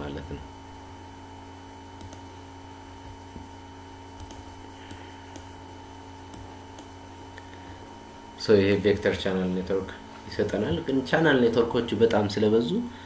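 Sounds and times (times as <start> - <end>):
low electrical hum: 0.0 - 13.0
computer mouse clicks: 2.0 - 2.3, 4.2 - 5.5, 6.3 - 7.0.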